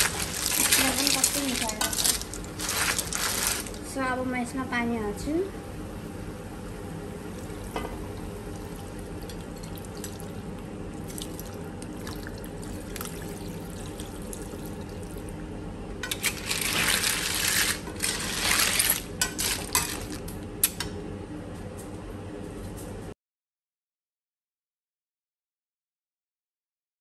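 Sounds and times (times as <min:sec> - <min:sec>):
metal spoon stirring snails: 0:00.0 - 0:03.7
snails frying: 0:00.0 - 0:04.0, 0:16.0 - 0:20.7.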